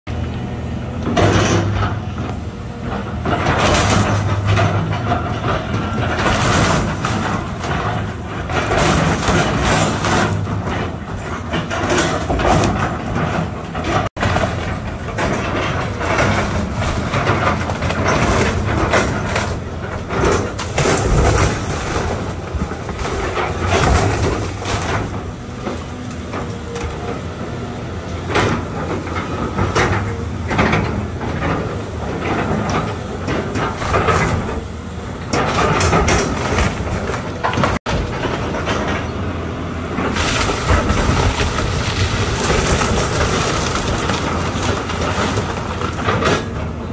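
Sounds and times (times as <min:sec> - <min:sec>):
excavator diesel engine running: 0:00.1 - 0:46.9
debris crashing: 0:01.1 - 0:46.9
timber cracking and splintering: 0:40.0 - 0:46.6.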